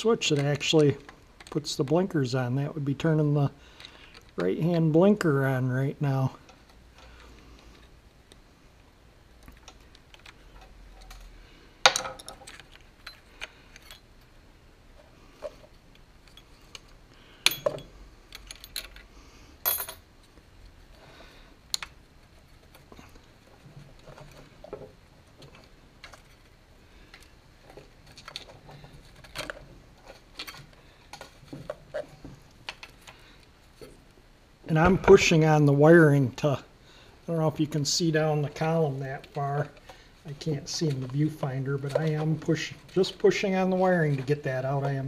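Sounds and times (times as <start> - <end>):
screwdriver and metal parts clinking: 11.9 - 14.1, 16.2 - 19.1, 27.2 - 31.8.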